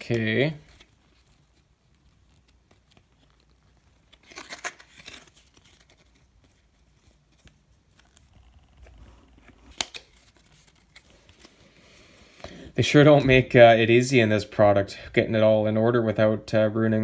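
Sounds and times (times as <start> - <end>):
card scraping: 0.1 - 11.7
cards sliding and rubbing: 0.1 - 12.5.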